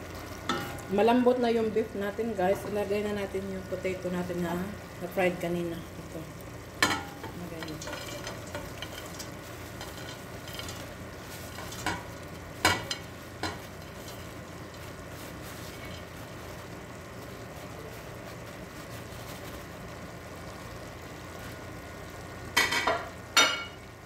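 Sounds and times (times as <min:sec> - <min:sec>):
simmering pot hissing: 0:00.0 - 0:24.0.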